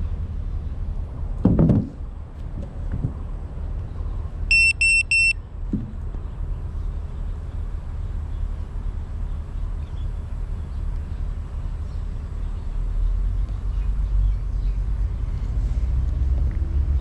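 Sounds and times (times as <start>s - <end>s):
wind and handling rumble: 0.0s - 4.5s, 5.4s - 17.0s
rustle or knock: 1.4s - 3.2s, 5.6s - 6.2s
short electronic beeps: 4.5s - 5.4s.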